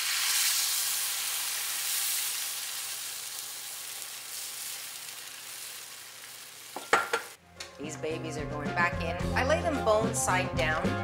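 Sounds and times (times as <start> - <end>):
liquid sizzling on hot pan: 0.0 - 7.4.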